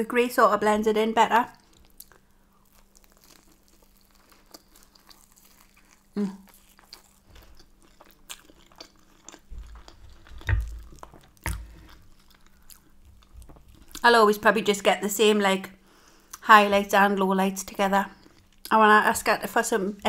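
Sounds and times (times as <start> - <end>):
close chewing mouth sounds: 1.6 - 14.1.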